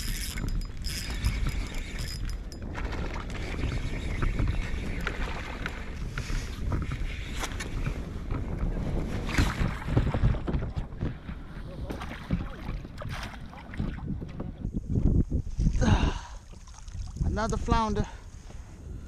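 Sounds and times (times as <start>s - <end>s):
fishing tackle clicks and knocks: 0.0s - 3.4s
wind rumbling on microphone: 0.0s - 19.0s.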